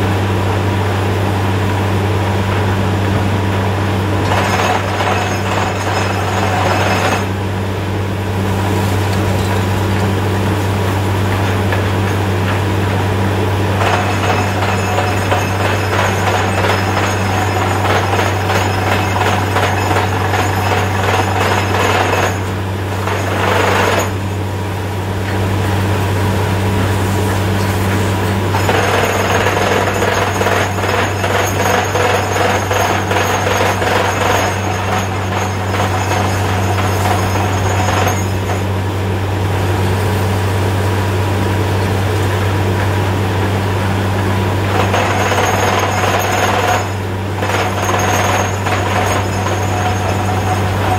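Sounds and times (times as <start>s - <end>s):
engine and compressor drone: 0.0s - 50.9s
drill hammer rattling: 4.2s - 7.3s, 13.8s - 24.2s, 28.5s - 38.6s, 44.7s - 50.9s.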